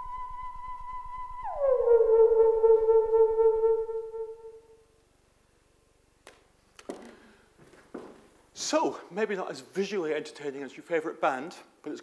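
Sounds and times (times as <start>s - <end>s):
synthesizer tone sliding down: 0.0s - 4.6s.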